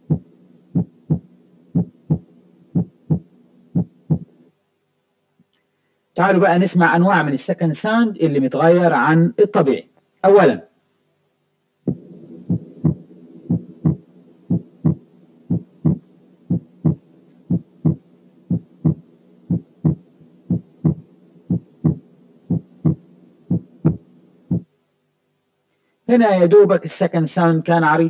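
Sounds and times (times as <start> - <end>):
heartbeat: 0.0 - 4.4, 11.9 - 24.7
faint steady hum: 0.0 - 28.0.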